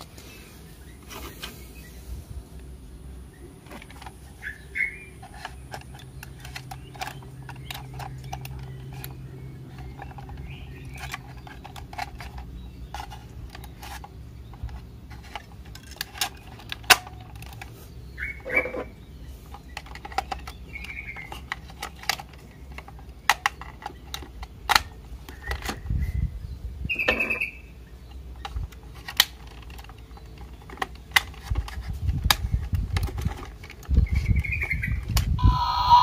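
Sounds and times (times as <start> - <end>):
rubbing and knocking of toy: 3.6 - 4.5, 5.1 - 25.8, 28.4 - 34.5
batteries clicking into compartment: 3.6 - 17.7, 18.4 - 25.9, 28.2 - 34.0.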